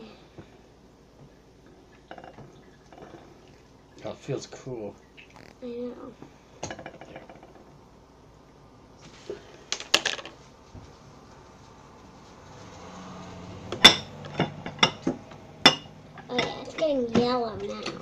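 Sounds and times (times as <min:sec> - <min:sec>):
faint rustle: 0:09.0 - 0:13.5.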